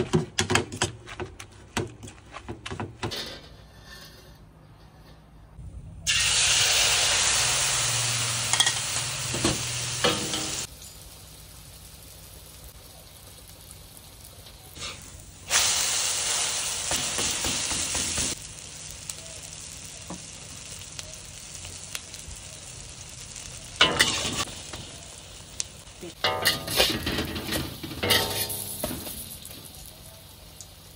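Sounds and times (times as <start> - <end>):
metal spatula scraping wok: 3.1 - 5.6, 23.8 - 24.5, 26.2 - 28.8
batter sizzling in hot oil: 6.1 - 30.9.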